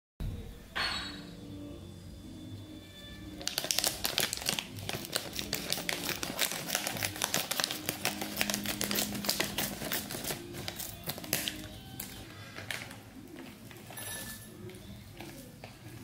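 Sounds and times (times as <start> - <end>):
plastic film crinkling: 3.4 - 16.0.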